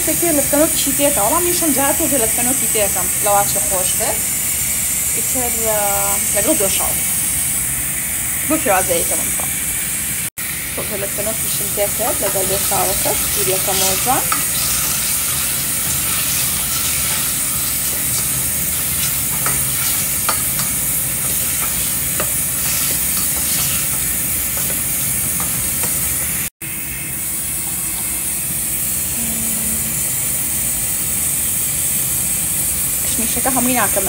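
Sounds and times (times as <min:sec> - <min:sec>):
food sizzling in a frying pan: 0:00.0 - 0:34.0
utensil clicking against pan: 0:13.2 - 0:26.1.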